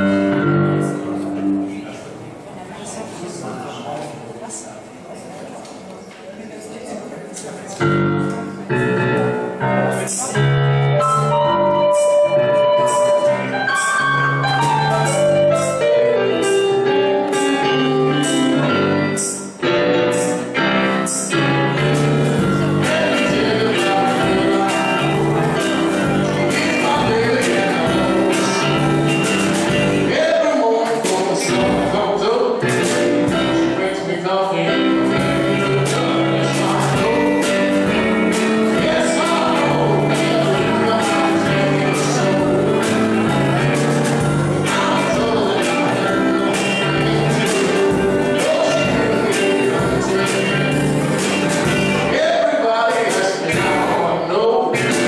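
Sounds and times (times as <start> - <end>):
live band playing: 0.0 - 3.2, 7.5 - 55.0
man singing: 21.7 - 55.0.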